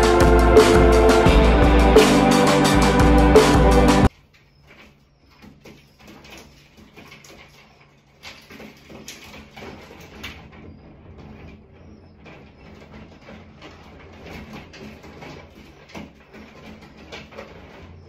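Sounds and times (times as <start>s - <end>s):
animal scratching in ceiling: 4.1s - 18.0s.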